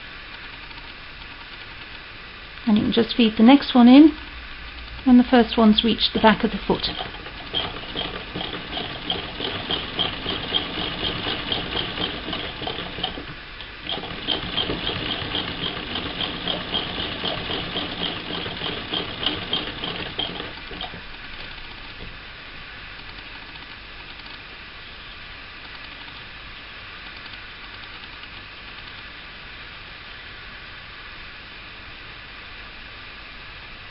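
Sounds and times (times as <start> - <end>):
sewing machine stitching: 6.1 - 22.1.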